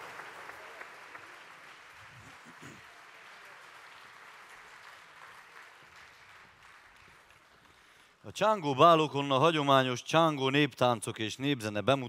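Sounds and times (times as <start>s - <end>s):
faint audience applause: 0.0s - 8.2s.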